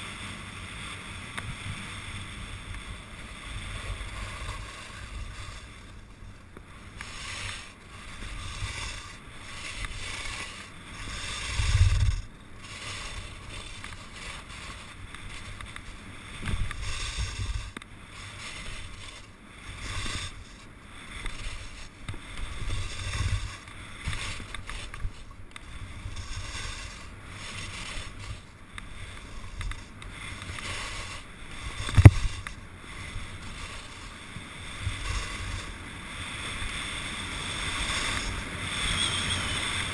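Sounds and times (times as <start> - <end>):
skis scraping over snow: 0.0 - 39.9
wind buffeting microphone: 1.4 - 15.6.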